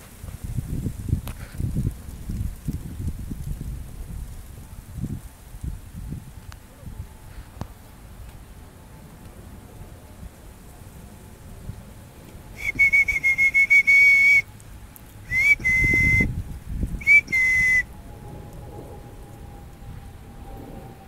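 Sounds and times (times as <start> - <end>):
whistle blasts: 12.6 - 14.5, 15.3 - 16.3, 17.0 - 18.1.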